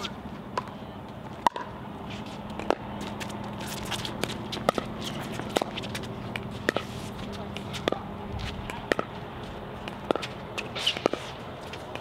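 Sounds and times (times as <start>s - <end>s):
steady low hum: 0.0s - 12.0s
shoes on hard court: 2.1s - 12.0s.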